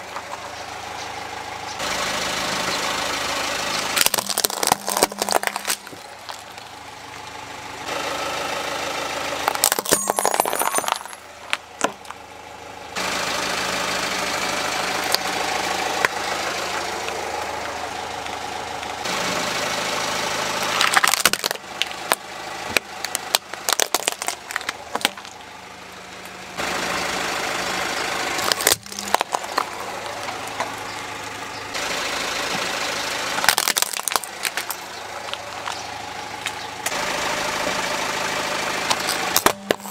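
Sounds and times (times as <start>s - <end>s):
car engine idling: 0.0s - 39.9s
plastic toys cracking under tyre: 4.0s - 6.7s, 9.5s - 12.2s, 20.8s - 25.4s, 28.4s - 30.7s, 33.4s - 35.8s, 38.9s - 39.9s.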